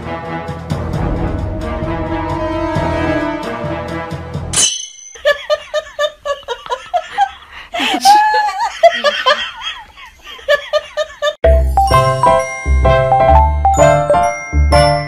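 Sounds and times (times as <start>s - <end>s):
background music: 0.0s - 4.7s, 11.4s - 15.0s
person laughing: 5.2s - 11.4s.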